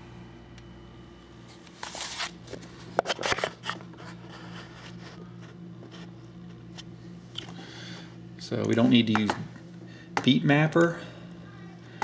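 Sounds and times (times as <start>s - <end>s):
steady low hum: 0.0s - 12.0s
camera handling rustling and scraping: 1.6s - 5.2s.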